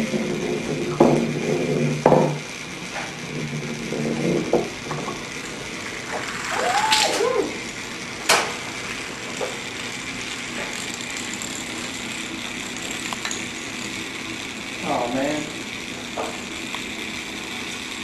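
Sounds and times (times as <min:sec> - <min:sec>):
wooden ball rolling down ramp: 0:00.0 - 0:07.6
steady hiss: 0:00.8 - 0:18.0
rising and falling tone: 0:06.1 - 0:07.6.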